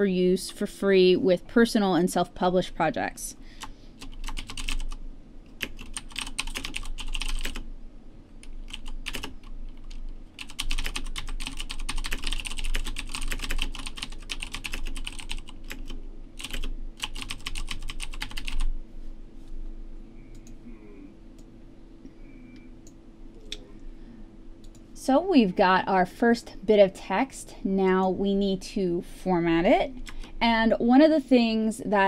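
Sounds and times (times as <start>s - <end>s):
typing on computer keyboard: 4.0s - 5.0s, 5.6s - 7.6s, 8.4s - 18.7s.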